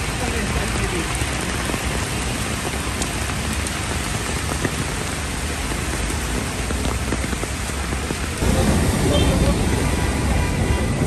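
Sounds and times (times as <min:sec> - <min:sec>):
raindrop ticks: 0:00.0 - 0:08.5
heavy rain on road: 0:00.0 - 0:11.0.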